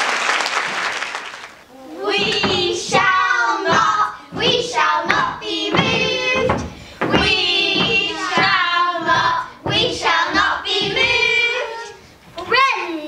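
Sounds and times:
children singing: 1.7 - 12.0.

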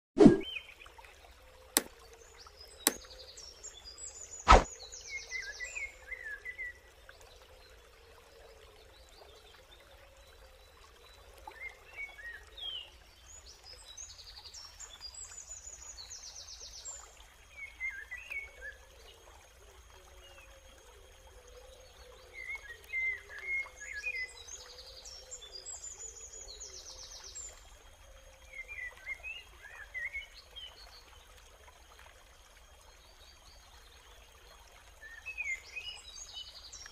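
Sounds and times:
short bird chirps: 0.2 - 0.5
sharp click: 4.5 - 4.7.

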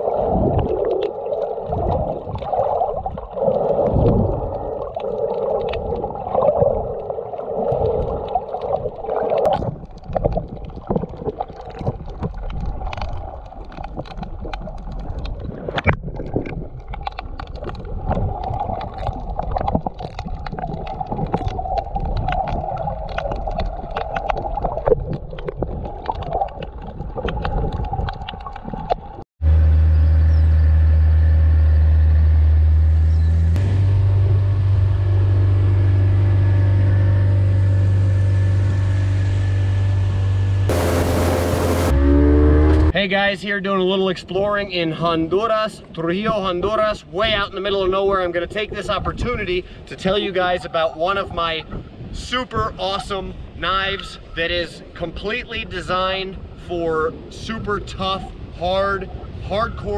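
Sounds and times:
muffled underwater rush: 0.0 - 29.6, 33.6 - 59.9.

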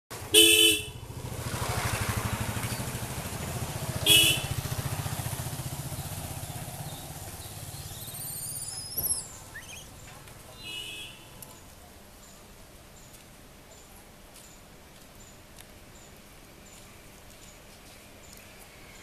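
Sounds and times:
motorcycle engine rumbling: 0.1 - 11.4
high rising chirps: 6.9 - 10.1.

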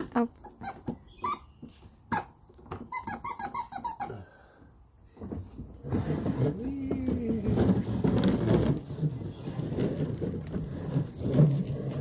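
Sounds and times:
plastic toy car squeaking: 0.4 - 4.1
plastic wheels rolling on wood: 5.1 - 12.0.

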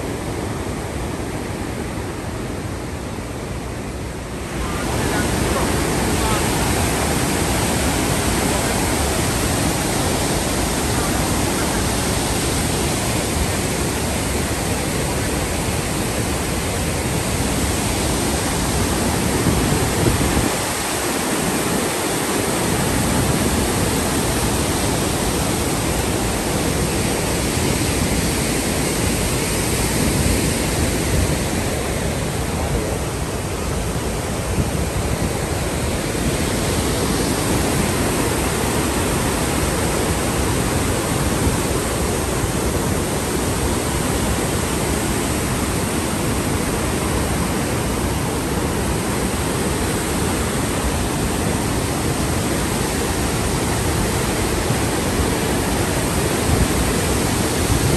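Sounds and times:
waterfall rushing: 0.0 - 57.9.

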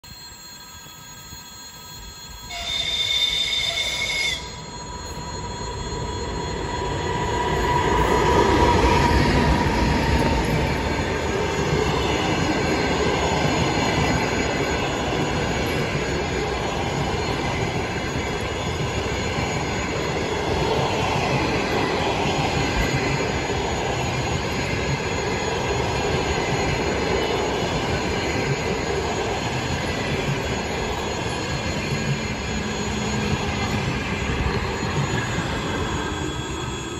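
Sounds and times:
electric locomotive passing: 0.0 - 36.9
train wheels on rails: 0.0 - 36.9
train horn blast: 2.5 - 4.6.

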